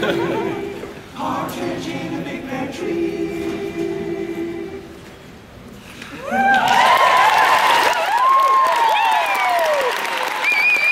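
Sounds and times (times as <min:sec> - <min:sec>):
male group singing a cappella: 0:00.0 - 0:05.0
audience cheering and whooping: 0:06.1 - 0:10.9
applause: 0:06.3 - 0:10.9.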